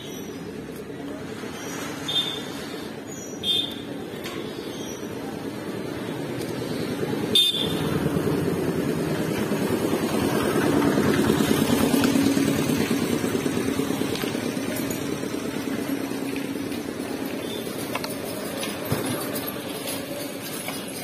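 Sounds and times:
passing vehicle engine: 0:05.1 - 0:21.0.

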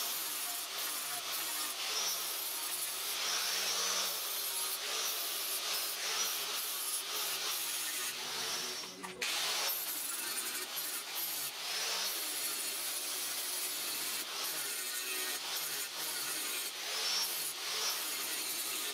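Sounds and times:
angle grinder grinding steel: 0:00.0 - 0:18.9.

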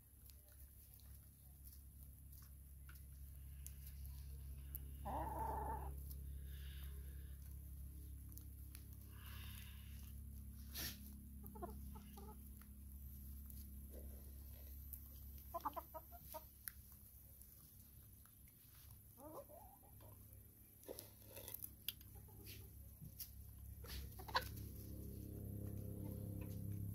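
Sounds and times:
hens clucking: 0:04.1 - 0:06.3, 0:09.1 - 0:17.0, 0:18.4 - 0:26.9.

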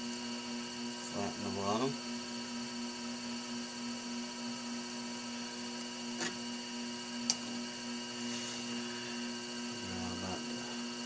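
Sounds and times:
potter's wheel motor hum: 0:00.0 - 0:11.0.

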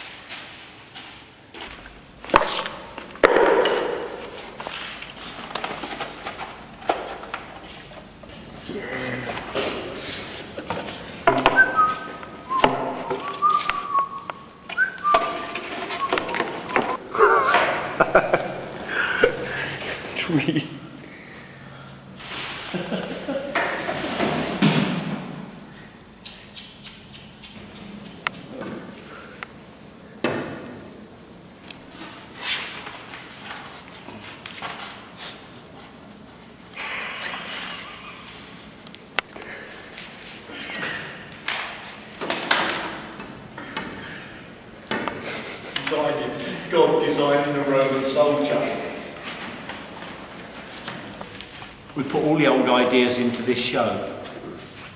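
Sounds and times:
sharp knocks: 0:11.2 - 0:11.8
person whistling a slow tune: 0:11.4 - 0:17.0.

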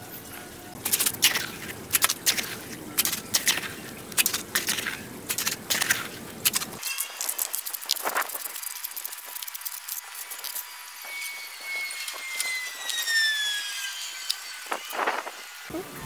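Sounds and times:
trowel scraping wet mortar: 0:00.7 - 0:13.1.

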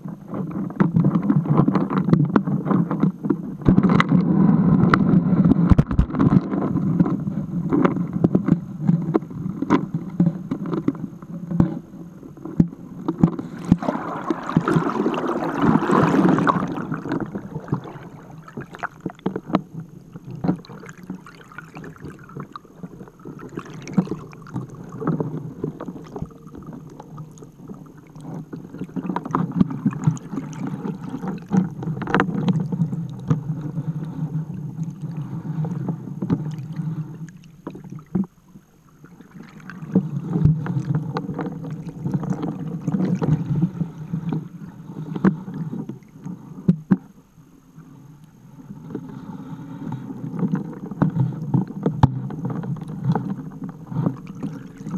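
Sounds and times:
water rushing past camera: 0:12.9 - 0:46.5, 0:48.7 - 0:54.9.

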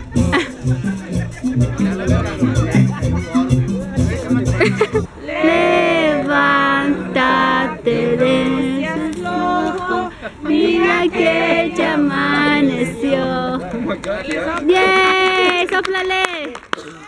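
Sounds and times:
group singing unaccompanied: 0:05.1 - 0:14.1.

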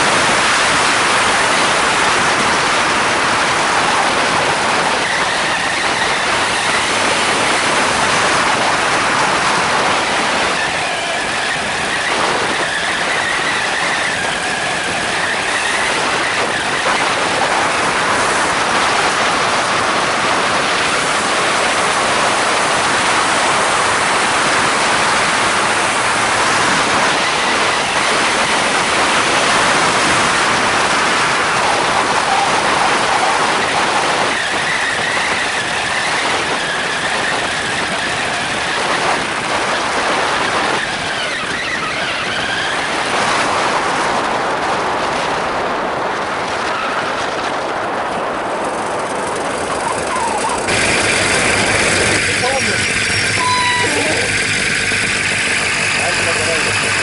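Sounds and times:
two-stroke engine running: 0:00.0 - 0:40.8, 0:48.3 - 0:57.0
propeller whirring: 0:00.0 - 0:57.0
wind rushing over microphone: 0:00.0 - 0:57.0.

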